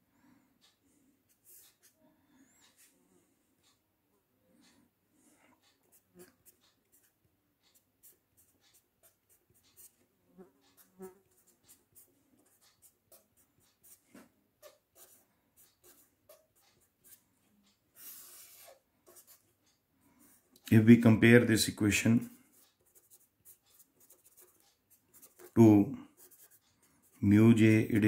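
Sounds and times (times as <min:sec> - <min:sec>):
pen scratching on paper: 0:01.3 - 0:02.0, 0:05.8 - 0:17.2, 0:18.0 - 0:19.5, 0:22.3 - 0:28.0.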